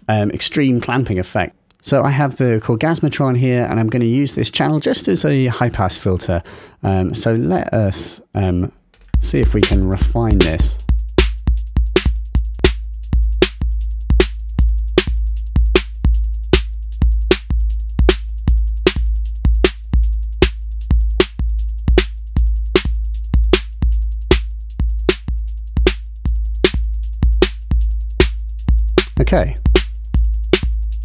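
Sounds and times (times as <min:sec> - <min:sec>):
pumping electronic drum loop: 0:09.0 - 0:31.0.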